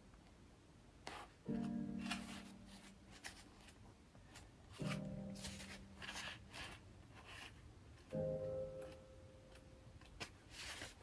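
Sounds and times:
book pages rustling: 1.0s - 11.0s
faint piano music: 1.0s - 11.0s.

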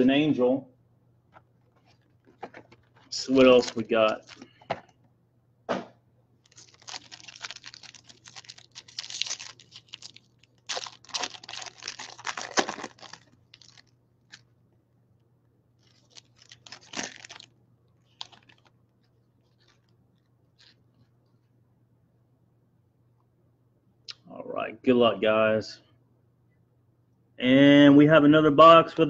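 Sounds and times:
foil wrapper crinkling: 1.8s - 4.6s, 6.4s - 14.4s, 15.8s - 18.7s.

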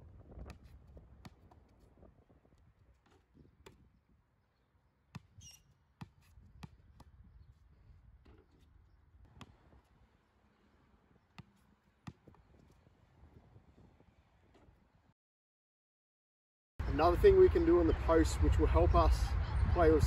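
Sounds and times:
basketball bouncing on concrete: 0.4s - 1.7s, 5.1s - 7.1s, 9.2s - 9.8s, 11.3s - 12.7s.

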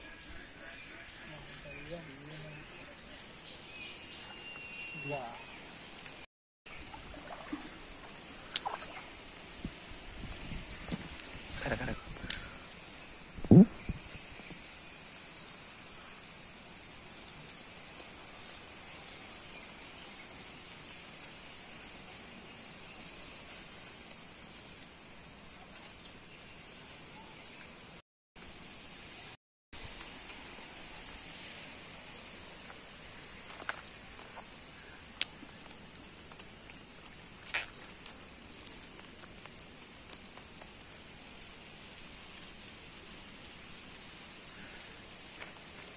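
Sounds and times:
faint outdoor background: 0.0s - 45.9s
fish flopping on wet mud: 33.4s - 40.9s.

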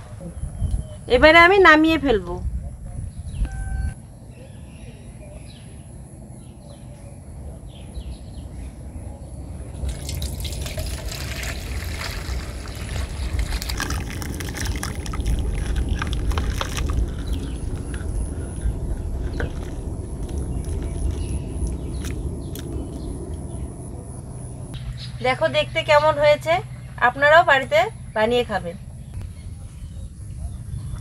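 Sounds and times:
liquid splashing into a bowl: 9.8s - 15.4s.

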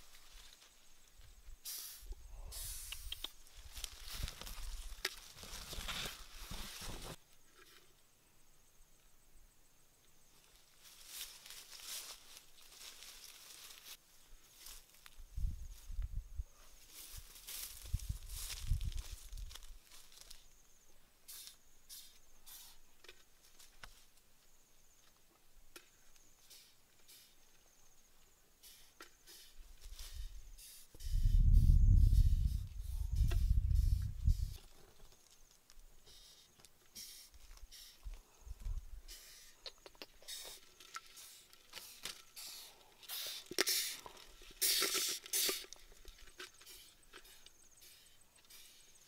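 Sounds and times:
dry rustling of leaves: 0.0s - 1.6s, 3.1s - 7.4s, 10.3s - 20.6s, 29.6s - 30.6s
rustling of leaves and twigs: 0.0s - 1.7s, 2.6s - 8.0s, 10.2s - 25.1s, 29.2s - 30.6s, 31.3s - 39.6s, 40.2s - 49.0s
small clicks of beetles: 0.0s - 5.9s, 16.9s - 20.7s, 21.3s - 49.0s.

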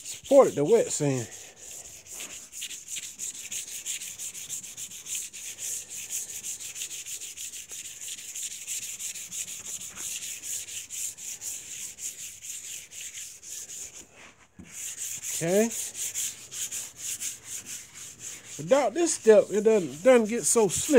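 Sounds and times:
wet sanding strokes: 0.0s - 20.9s.

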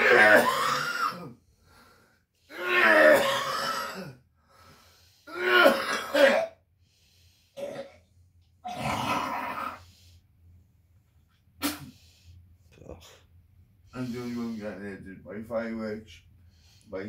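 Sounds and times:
man coughing and clearing throat: 0.1s - 1.4s, 3.0s - 4.2s, 5.5s - 6.6s, 7.6s - 8.0s.

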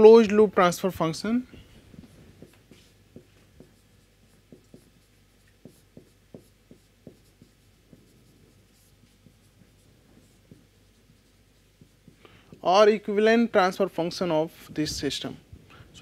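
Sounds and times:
marker pen writing on whiteboard: 1.3s - 13.1s.

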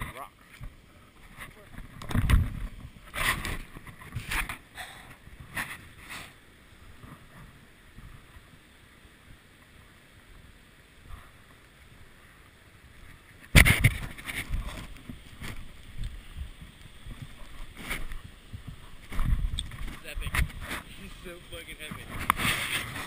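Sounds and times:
wind rumble on microphone: 0.6s - 4.5s, 12.9s - 23.0s.

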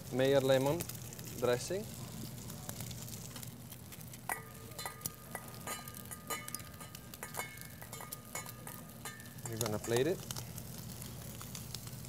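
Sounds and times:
metal spoon clinking on dishes: 4.3s - 10.1s.

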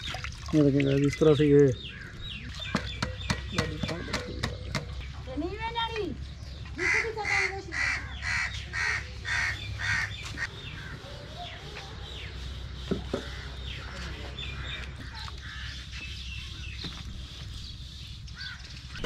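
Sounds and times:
small birds chirping: 0.0s - 19.0s
crow cawing: 6.8s - 11.0s.

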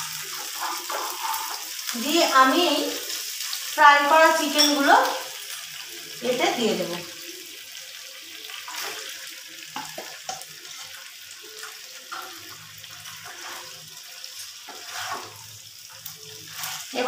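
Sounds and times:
spatula stirring in pan: 0.0s - 2.0s, 8.4s - 17.0s
sauce sizzling in frying pan: 0.0s - 17.0s.

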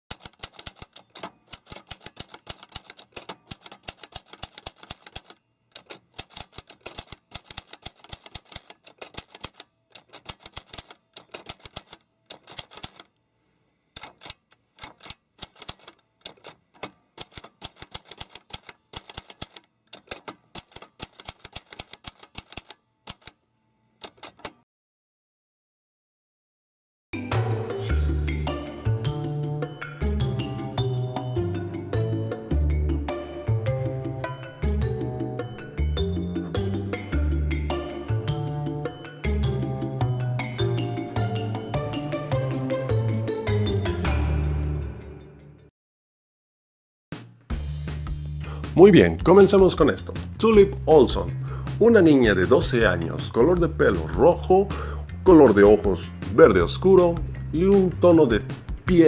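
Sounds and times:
manual typewriter typing: 0.1s - 13.1s, 14.0s - 23.4s, 24.0s - 24.6s.

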